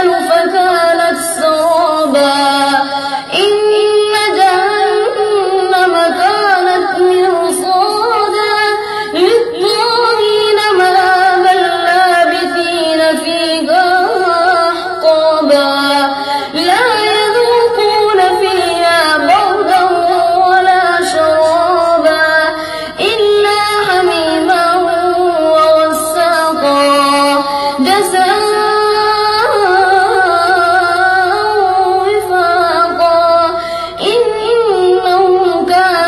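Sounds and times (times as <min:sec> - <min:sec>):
boy chanting melodically: 0:00.0 - 0:36.0.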